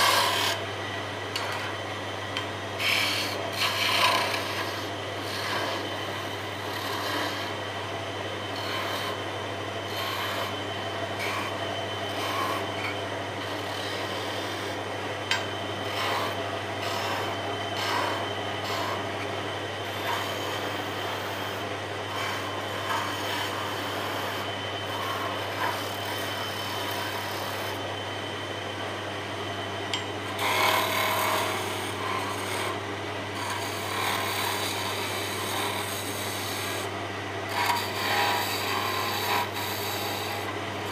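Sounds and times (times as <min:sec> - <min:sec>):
chisel scraping wood: 0:00.0 - 0:00.6, 0:02.8 - 0:07.6, 0:08.5 - 0:09.2, 0:09.8 - 0:27.8, 0:30.3 - 0:36.9, 0:37.5 - 0:40.9
lathe motor hum: 0:00.0 - 0:40.9.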